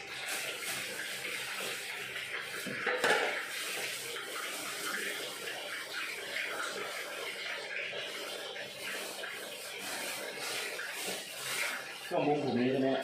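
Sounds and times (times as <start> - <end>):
clatter in sink: 0.3 - 5.3
tap running into sink: 2.4 - 7.5.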